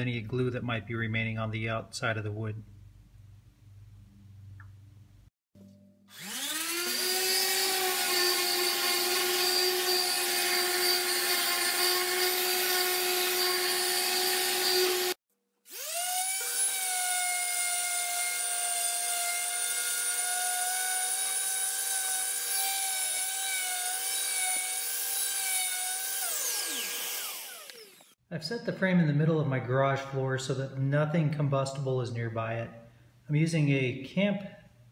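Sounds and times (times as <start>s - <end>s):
orbital sander running: 6.1s - 28.2s.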